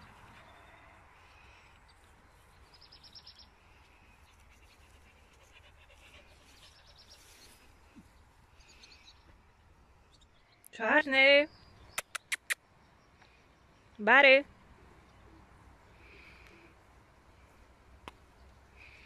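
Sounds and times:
small bird chirping: 11.5 - 14.0.

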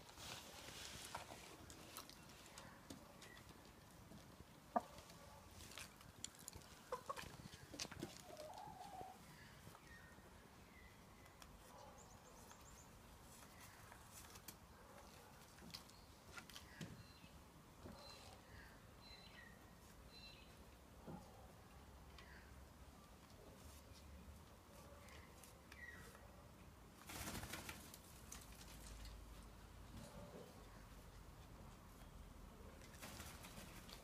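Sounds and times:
hen clucking softly: 6.8 - 7.5.

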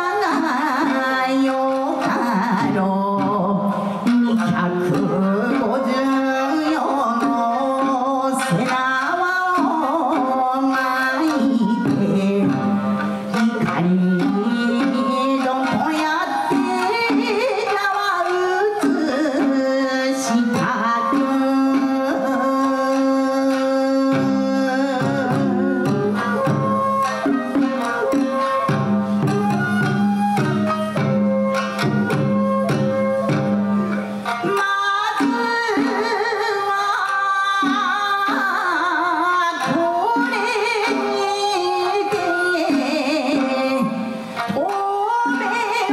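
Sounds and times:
plucked string ensemble: 0.0 - 45.9
person singing: 18.6 - 26.6.

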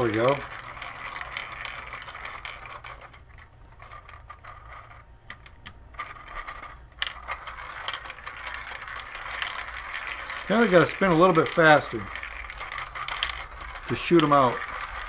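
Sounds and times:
plastic gears scraping and clicking: 0.0 - 15.0
steel balls rattling: 0.0 - 15.0.

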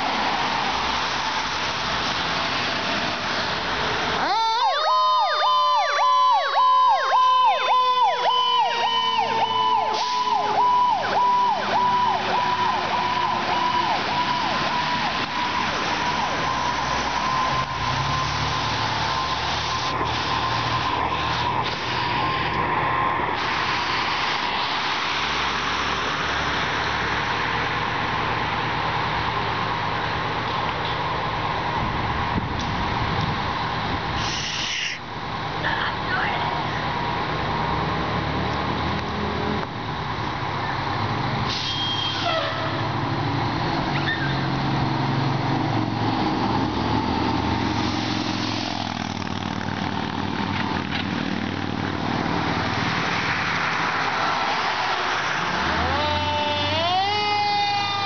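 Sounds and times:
vehicle rushing noise: 0.0 - 30.4, 42.5 - 58.0.

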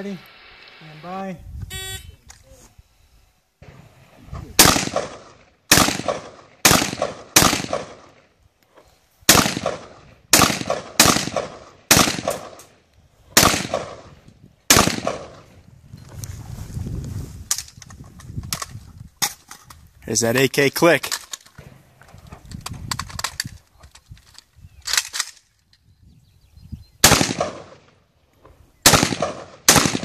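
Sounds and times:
rifle shots with echo: 4.6 - 8.3, 9.3 - 12.7, 13.4 - 15.6, 27.0 - 28.0, 28.8 - 30.0.

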